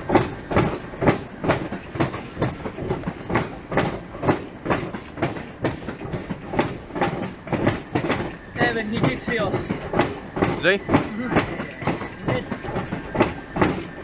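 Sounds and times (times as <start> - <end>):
train wheels clicking over rail joints: 0.0 - 14.0.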